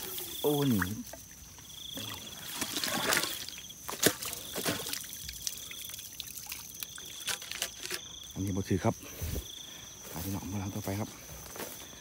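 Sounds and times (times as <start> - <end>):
water trickling: 0.0 - 8.2
crickets chirping: 0.0 - 12.0.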